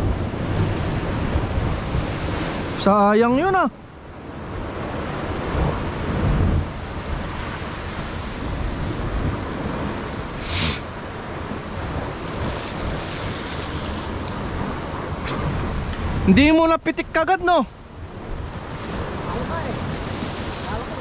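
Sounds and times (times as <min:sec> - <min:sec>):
wind buffeting microphone: 0:00.0 - 0:21.0
sea swell washing against rocks: 0:05.2 - 0:16.4, 0:18.1 - 0:21.0
brief hiss: 0:10.4 - 0:10.8.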